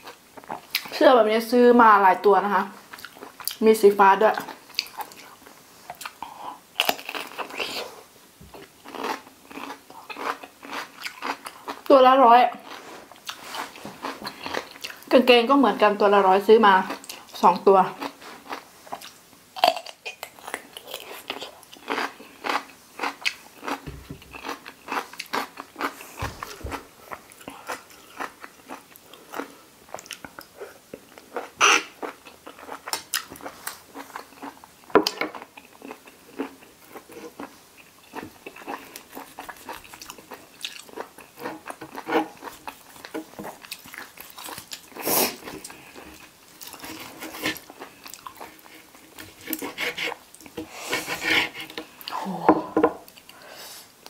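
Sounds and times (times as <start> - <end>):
crunchy biting and chewing: 6.8 - 7.9, 8.6 - 11.9, 18.0 - 30.5, 31.1 - 50.6.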